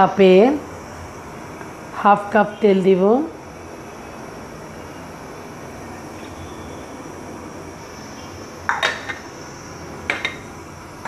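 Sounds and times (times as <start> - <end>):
cup clinking against pan: 8.7 - 9.2, 10.1 - 10.4.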